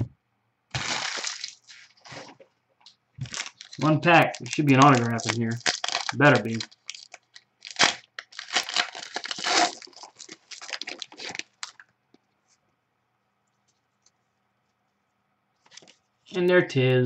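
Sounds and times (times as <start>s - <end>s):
foil wrapper tearing and crinkling: 0.7s - 2.3s, 3.2s - 11.8s.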